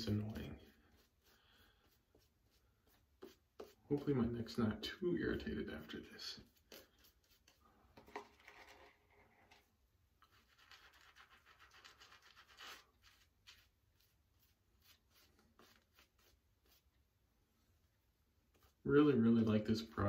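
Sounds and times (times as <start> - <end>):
shaving brush swishing lather: 0.0 - 7.6, 10.2 - 17.0.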